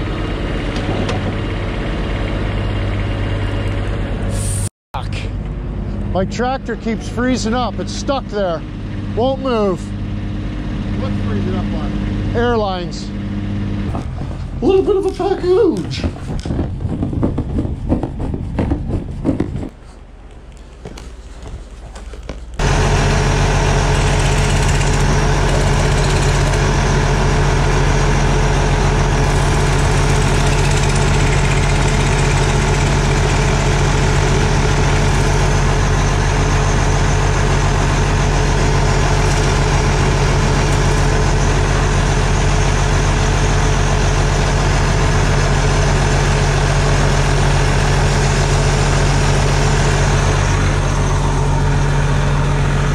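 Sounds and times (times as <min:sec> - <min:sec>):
tractor diesel engine idling: 0:05.0 - 0:13.8, 0:22.6 - 0:52.9.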